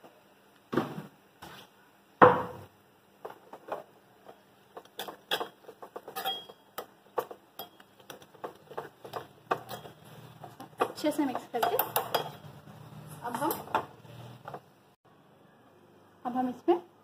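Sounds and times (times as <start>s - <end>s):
spoon clinking in metal pan: 4.9s - 6.9s, 7.6s - 8.1s, 9.1s - 10.0s, 10.8s - 12.5s.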